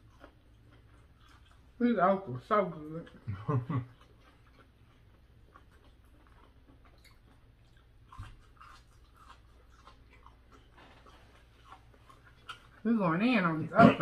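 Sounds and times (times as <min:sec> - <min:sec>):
people chewing: 0:00.0 - 0:13.0.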